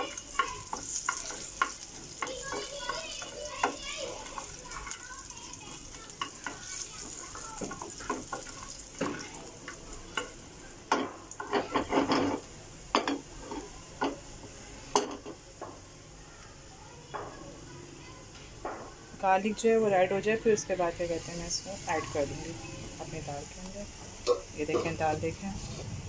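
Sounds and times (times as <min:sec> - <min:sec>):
spoon scraping pan: 0:00.0 - 0:04.7
spices sizzling in hot oil: 0:00.0 - 0:15.7, 0:19.2 - 0:26.0.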